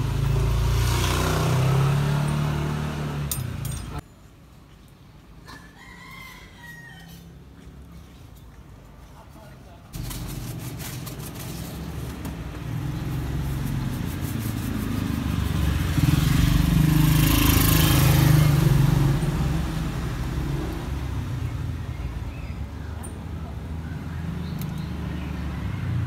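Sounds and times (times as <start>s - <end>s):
motor vehicle passing: 0.0s - 4.0s, 10.0s - 26.0s.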